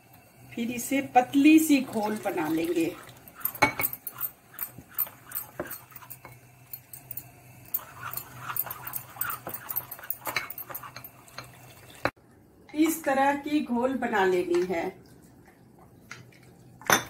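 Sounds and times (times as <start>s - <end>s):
spoon stirring batter in glass bowl: 2.0s - 11.7s
spoon squeaks: 3.4s - 11.5s.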